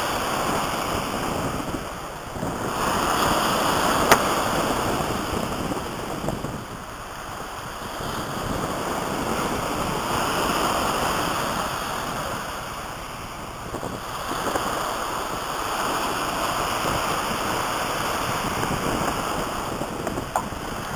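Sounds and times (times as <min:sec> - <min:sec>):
wind on microphone: 0:00.0 - 0:20.9
waves breaking on shingle: 0:02.5 - 0:05.0.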